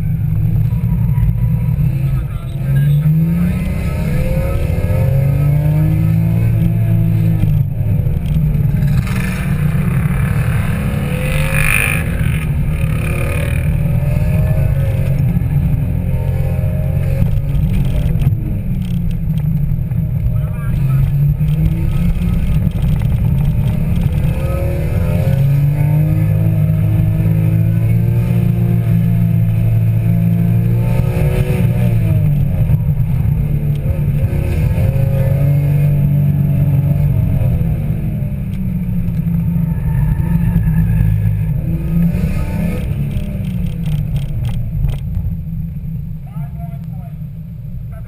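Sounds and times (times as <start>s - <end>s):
car engine revving: 0.0s - 48.0s.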